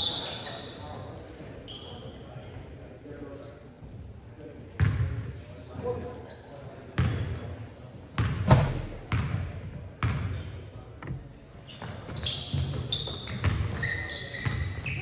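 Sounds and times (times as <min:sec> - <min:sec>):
sneakers squeaking: 0:00.0 - 0:02.4, 0:03.3 - 0:04.1, 0:04.8 - 0:07.4, 0:10.0 - 0:10.6, 0:11.4 - 0:15.0
basketball bouncing on gym floor: 0:08.2 - 0:10.3, 0:11.8 - 0:13.8.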